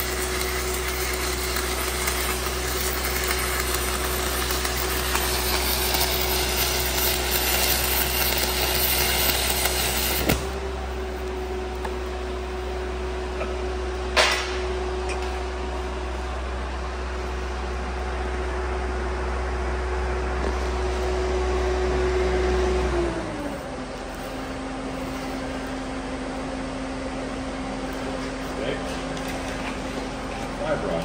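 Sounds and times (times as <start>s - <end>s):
welder engine running: 0.0s - 31.0s.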